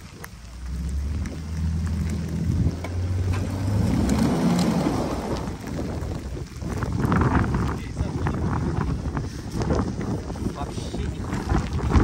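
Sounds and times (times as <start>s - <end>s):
tyres spinning in snow: 0.0s - 12.0s
truck engine revving: 0.5s - 6.2s.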